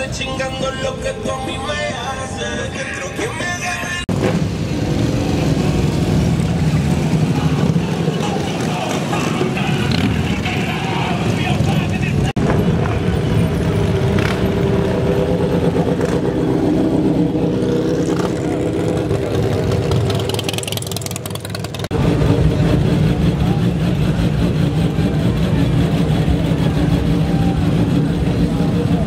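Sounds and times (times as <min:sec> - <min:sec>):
motorcycle engines at low speed: 0:00.0 - 0:29.0
motorcycle idling rolling past: 0:18.4 - 0:29.0.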